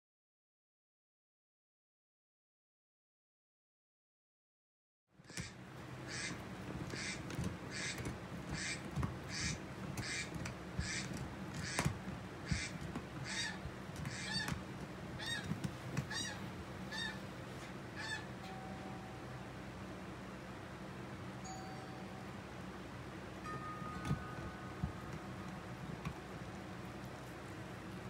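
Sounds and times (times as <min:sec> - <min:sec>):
steady low hum: 0:05.2 - 0:28.0
bird raspy calls: 0:05.3 - 0:14.6, 0:15.2 - 0:17.3, 0:17.9 - 0:18.3.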